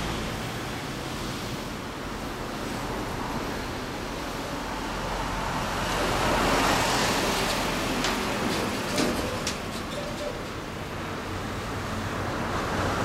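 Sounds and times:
vehicle passing by: 0:02.6 - 0:09.5.

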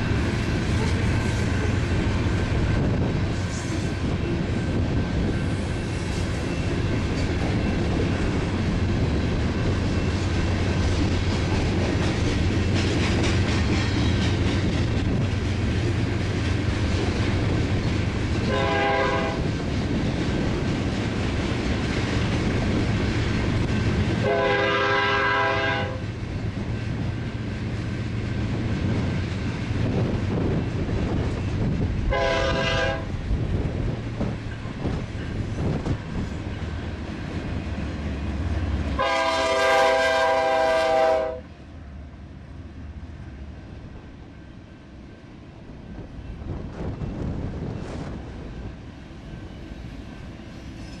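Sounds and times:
freight train rumbling past: 0:00.0 - 0:51.0
locomotive air horn blasts: 0:18.5 - 0:19.5, 0:24.2 - 0:26.0, 0:32.1 - 0:33.1, 0:38.9 - 0:41.5.

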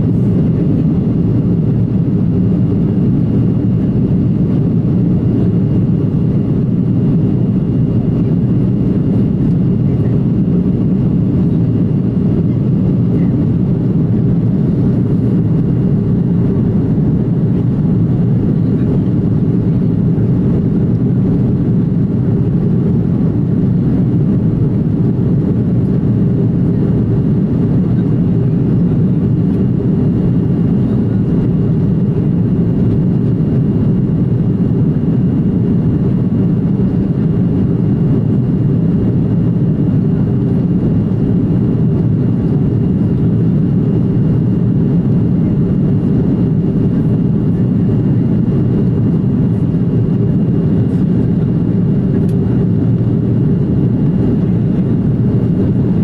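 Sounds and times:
airliner cabin drone: 0:00.0 - 0:56.0.

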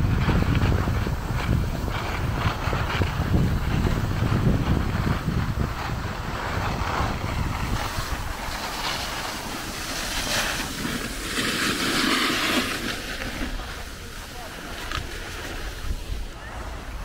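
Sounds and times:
skis hissing over snow: 0:00.0 - 0:17.0
wind buffeting microphone: 0:00.0 - 0:17.0.

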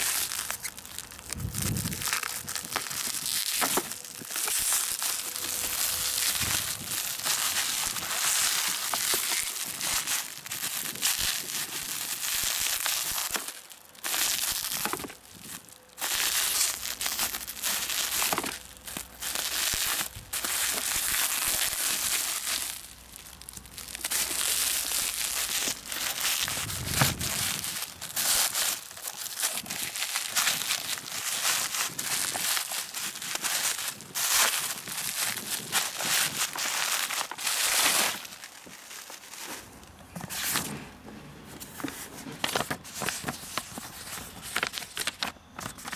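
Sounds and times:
plastic and tape crinkling: 0:00.0 - 0:45.9
low thud: 0:26.5 - 0:27.6.

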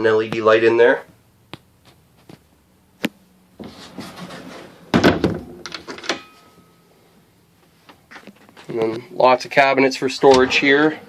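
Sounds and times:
sliding door shutting with thunk: 0:03.6 - 0:05.6.

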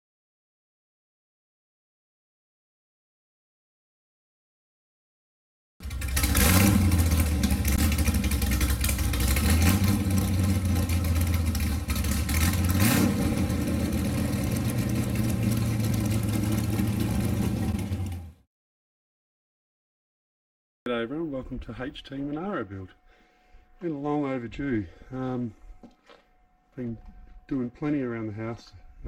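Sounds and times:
car engine idling and revving: 0:05.8 - 0:18.4.

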